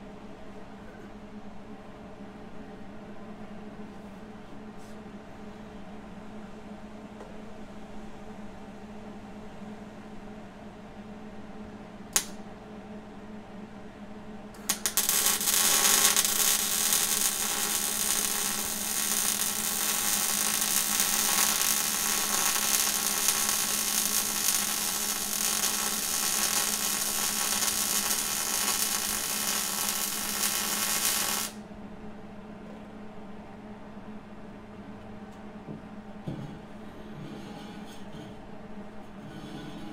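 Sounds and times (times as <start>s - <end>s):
steady low hum: 0.0s - 39.9s
welding arc crackling: 14.6s - 31.6s.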